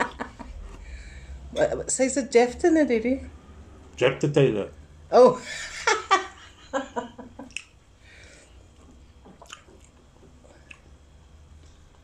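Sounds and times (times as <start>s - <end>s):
wet chewing: 7.5s - 7.8s, 8.7s - 11.0s.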